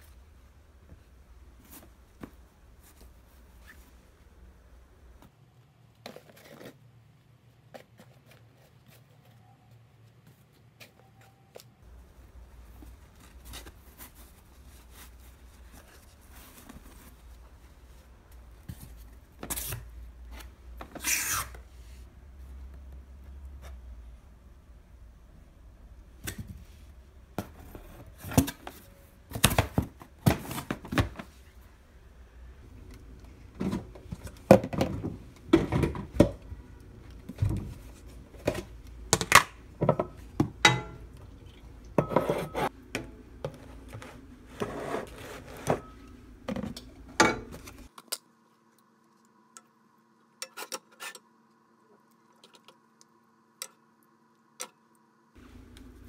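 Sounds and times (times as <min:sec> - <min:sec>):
faint steady hum: 0:00.0 - 0:56.0
dishes and containers clattering: 0:39.8 - 0:41.1.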